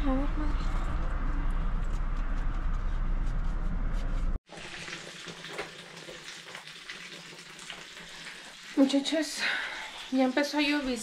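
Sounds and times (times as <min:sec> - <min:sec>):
low rumble: 0:00.0 - 0:04.4.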